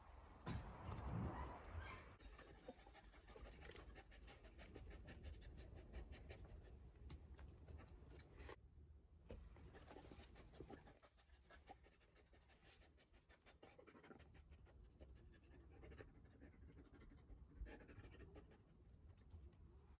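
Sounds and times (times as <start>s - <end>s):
dog panting: 2.2s - 8.6s, 9.7s - 18.8s.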